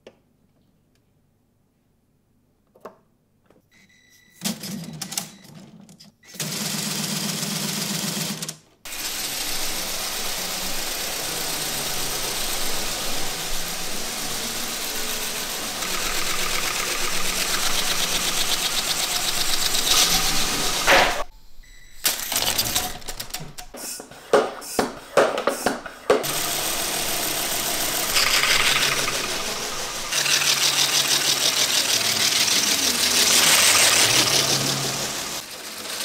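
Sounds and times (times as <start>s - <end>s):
hiss of exhausting air: 8.9s - 21.3s, 24.6s - 35.4s
pneumatic engine clattering: 8.9s - 21.3s, 22.0s - 36.0s.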